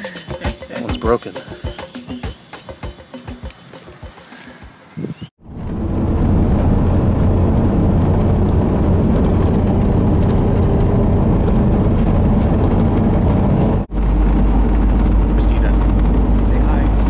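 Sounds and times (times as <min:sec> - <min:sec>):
motor engine running: 0:05.4 - 0:17.0.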